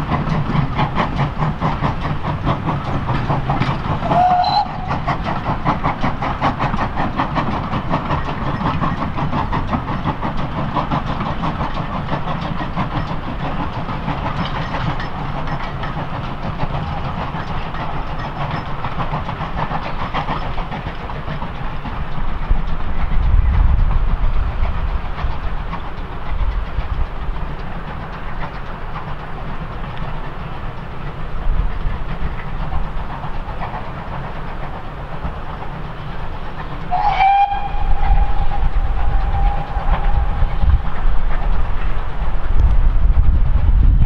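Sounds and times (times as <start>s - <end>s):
steam hiss: 0.0s - 43.6s
steam locomotive exhaust beating: 0.0s - 44.0s.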